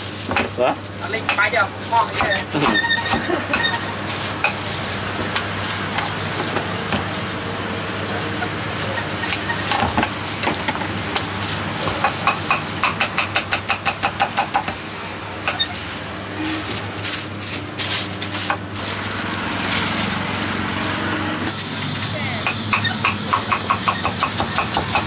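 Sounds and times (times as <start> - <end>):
knife chopping on wooden board: 22.5 - 25.0.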